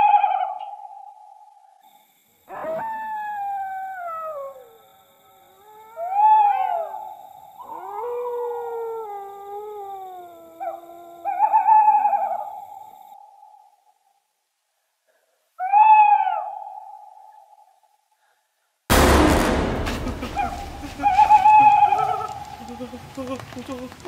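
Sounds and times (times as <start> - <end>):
eerie howling wails: 2.5 - 12.6, 20.6 - 24.0.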